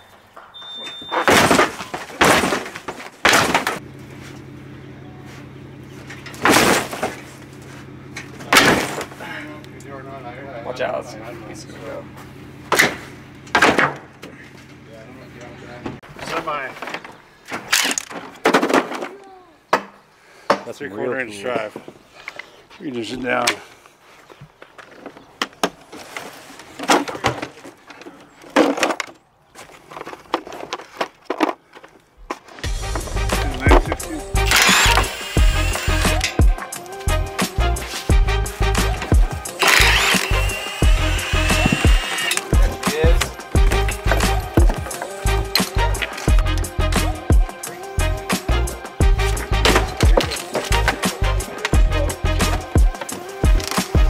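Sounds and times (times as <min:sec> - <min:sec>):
cardboard crate cracking crashes: 0:01.2 - 0:03.8, 0:06.4 - 0:07.4, 0:08.4 - 0:09.2, 0:18.1 - 0:19.2.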